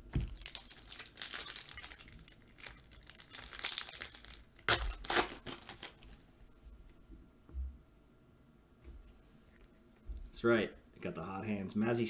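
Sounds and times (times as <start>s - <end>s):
foil pack crinkling and tearing: 0.3s - 6.2s.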